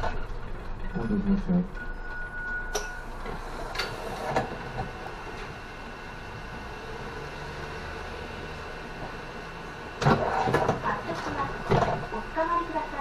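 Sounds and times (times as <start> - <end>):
bus engine humming: 0.0 - 13.0
electronic door tone: 0.8 - 6.0.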